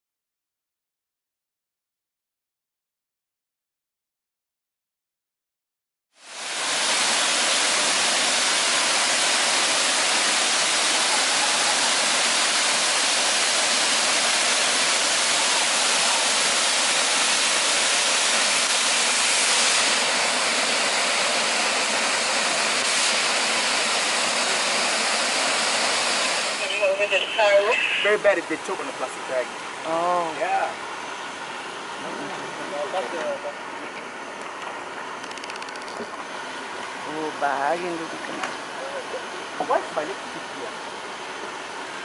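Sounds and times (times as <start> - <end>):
waterfall rushing: 6.4 - 20.7.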